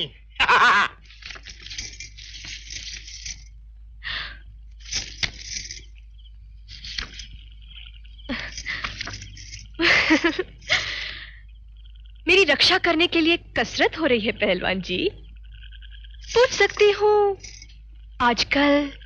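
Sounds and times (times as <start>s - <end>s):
paper crinkles: 1.0s - 3.5s, 4.8s - 5.9s, 6.7s - 10.4s
paper rustling: 1.0s - 3.5s, 4.8s - 5.8s, 6.7s - 7.4s, 8.3s - 10.2s.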